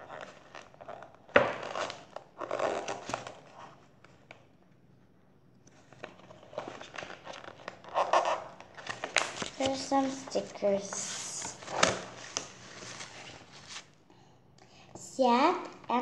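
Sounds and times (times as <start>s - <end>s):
paper rustling: 5.8s - 14.0s.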